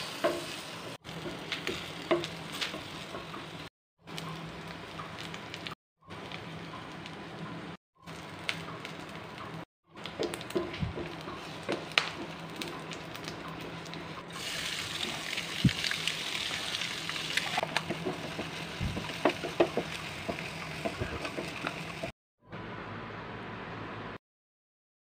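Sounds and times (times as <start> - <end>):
spices sizzling in oil: 0.0 - 22.2.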